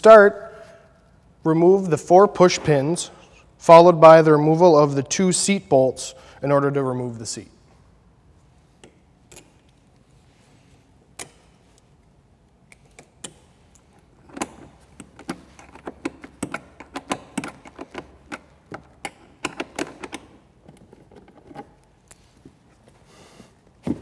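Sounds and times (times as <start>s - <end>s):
hand tools clicking and clacking: 12.8s - 21.7s.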